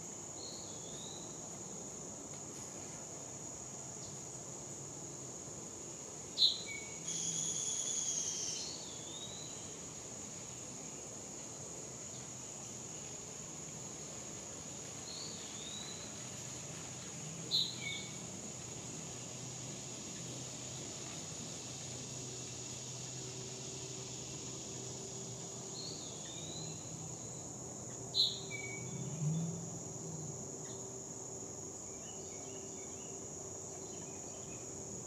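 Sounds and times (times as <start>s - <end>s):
high-pitched insect drone: 6.4s - 9.8s.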